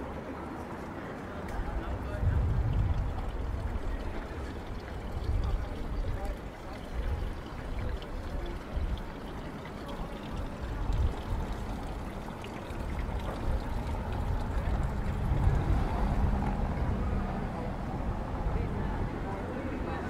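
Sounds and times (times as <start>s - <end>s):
rushing street noise: 0.0s - 6.5s, 10.6s - 20.0s
low engine hum: 12.8s - 19.4s.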